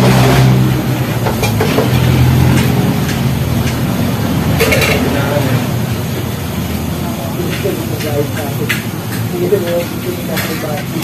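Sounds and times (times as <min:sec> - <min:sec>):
vehicle engine humming: 0:00.0 - 0:11.0
people talking: 0:04.5 - 0:06.2, 0:06.8 - 0:11.0.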